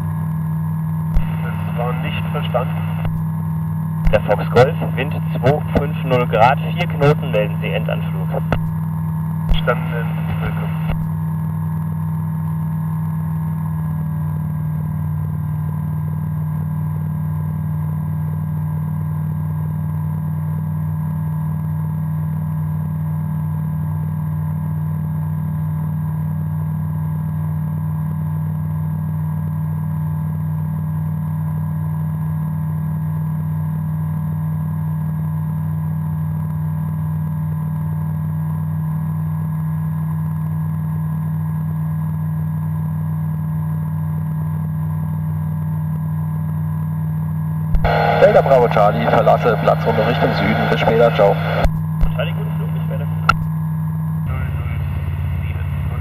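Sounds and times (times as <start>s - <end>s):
aircraft engine and propeller drone: 1.2s - 11.7s, 47.8s - 56.0s.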